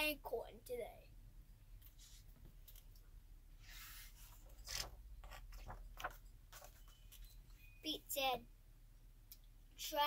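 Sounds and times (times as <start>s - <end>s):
paper pages rustling: 3.6s - 7.5s.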